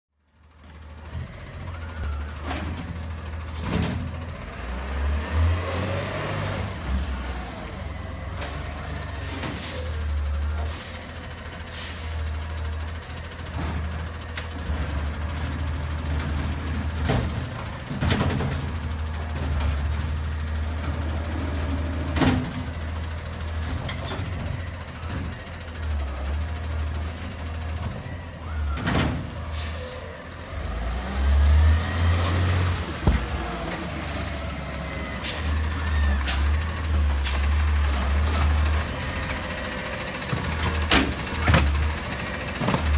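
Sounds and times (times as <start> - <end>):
garbage truck engine rumbling: 0.2 - 42.9
air brakes hissing: 9.1 - 10.0, 10.6 - 12.2, 29.4 - 30.1, 35.1 - 37.9.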